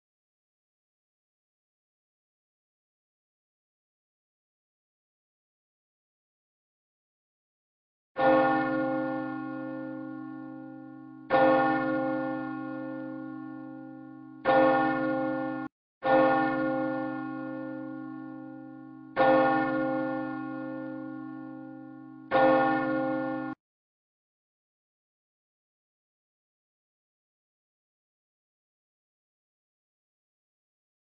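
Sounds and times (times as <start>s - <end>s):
church bell tolling: 8.2s - 23.6s.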